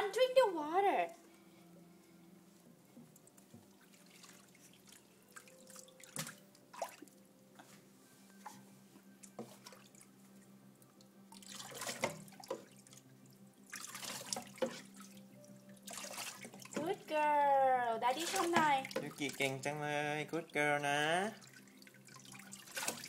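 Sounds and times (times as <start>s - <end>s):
water splashing in a sink: 3.6s - 7.2s, 11.3s - 13.0s, 13.6s - 17.0s, 18.1s - 23.0s.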